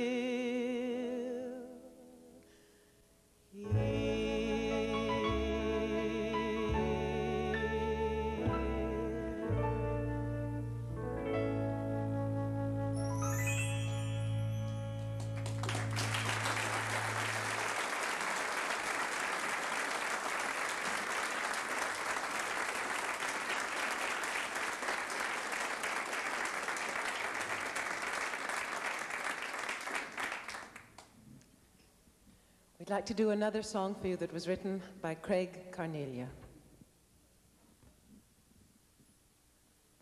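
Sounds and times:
piano and band chord: 0:03.7 - 0:12.2
audience applause: 0:14.7 - 0:31.1.

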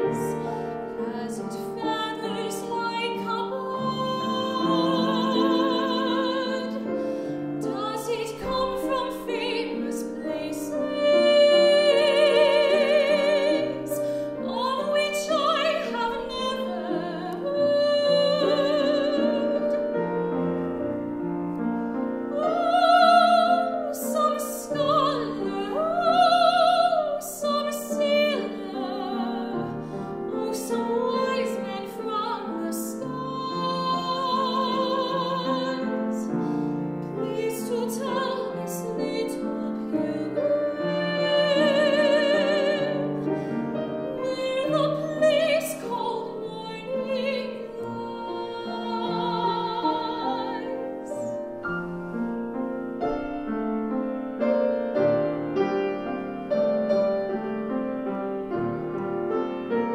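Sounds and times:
grand piano: 0:00.0 - 0:59.9
woman singing operatically: 0:01.0 - 0:07.0, 0:07.6 - 0:19.9, 0:22.3 - 0:29.7, 0:30.3 - 0:36.3, 0:37.2 - 0:51.4.

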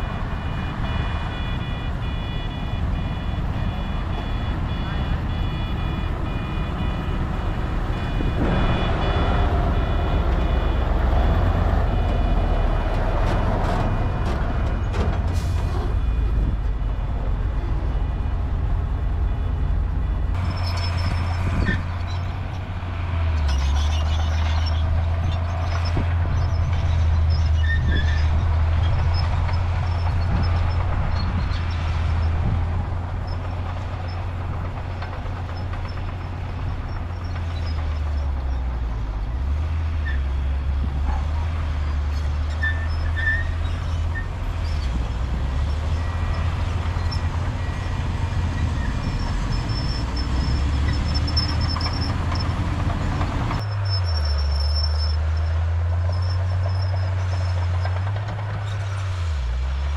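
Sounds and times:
diesel engine deep rumble: 0:00.0 - 0:59.9.

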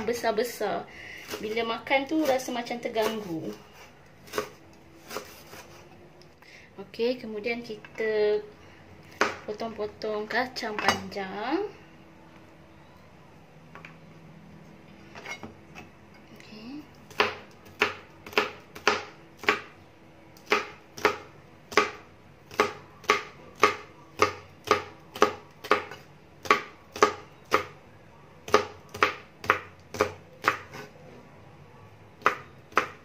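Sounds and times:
knife chopping on cutting board: 0:09.1 - 0:09.4.

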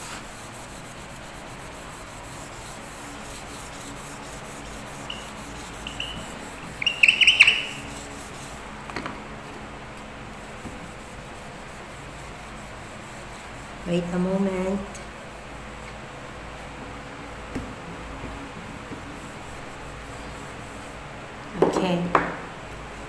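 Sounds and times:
eraser wiping whiteboard: 0:00.0 - 0:08.6, 0:10.4 - 0:14.3
high chirps: 0:05.1 - 0:07.9.

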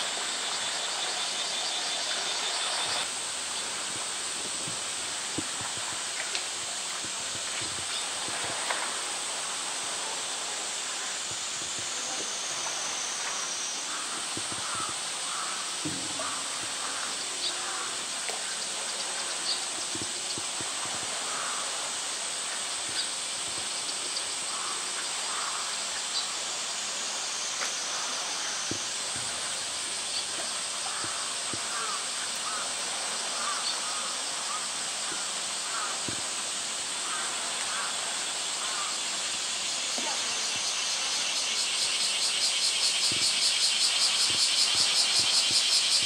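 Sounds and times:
outdoor ambience hiss: 0:00.0 - 0:46.0.

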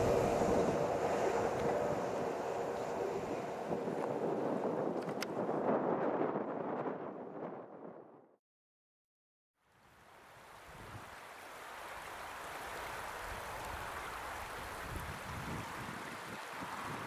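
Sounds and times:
wind buffeting microphone: 0:00.0 - 0:08.3, 0:13.3 - 0:17.0.

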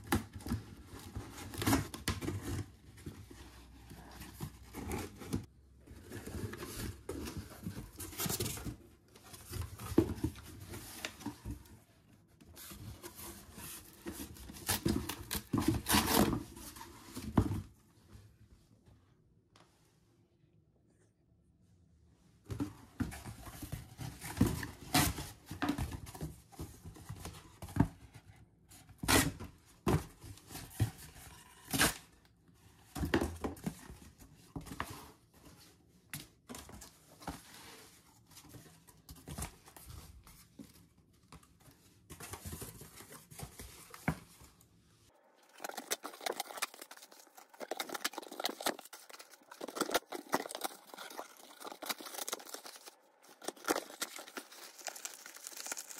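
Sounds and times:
cardboard rustling and scraping: 0:00.0 - 0:17.8, 0:36.5 - 0:55.9
cardboard ripping: 0:45.4 - 0:55.9.

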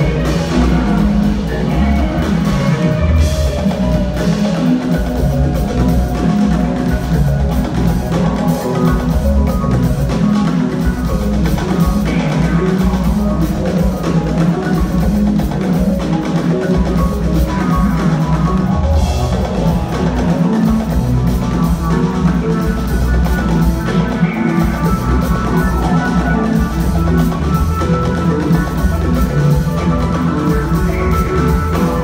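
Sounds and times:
drum kit: 0:00.0 - 0:32.0
repeating keyboard notes: 0:00.0 - 0:32.0.

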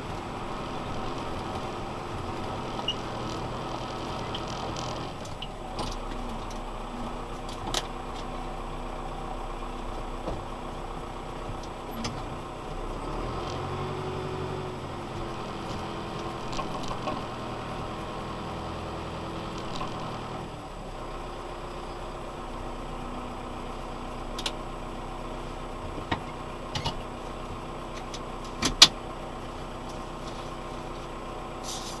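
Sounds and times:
diesel tractor engine running: 0:00.0 - 0:32.0
sharp clicks and knocks: 0:15.7 - 0:17.4, 0:27.9 - 0:29.0.

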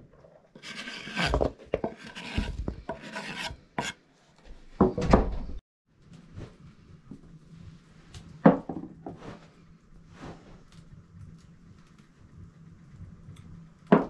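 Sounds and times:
rasping scraping of food preparation: 0:00.6 - 0:04.0.

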